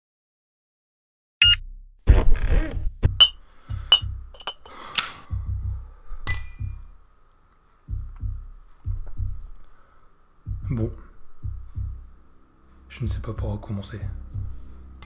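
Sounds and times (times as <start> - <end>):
low thumps: 1.7 - 4.4, 5.3 - 7.0, 7.9 - 9.6, 10.5 - 12.2, 13.4 - 14.7.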